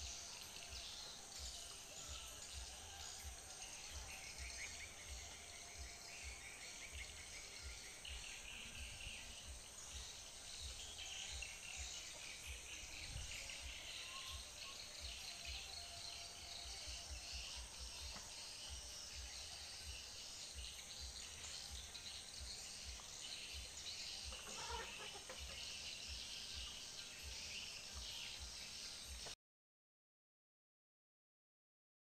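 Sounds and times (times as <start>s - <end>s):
insects chirring: 0.0s - 29.3s
bird chirps: 0.0s - 29.4s.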